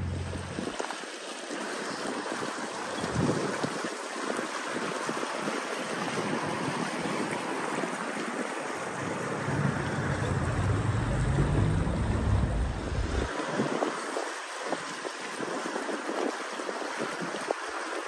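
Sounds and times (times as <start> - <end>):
river water lapping: 0.0 - 18.0
wind: 0.0 - 18.0
wind buffeting microphone: 6.0 - 17.6.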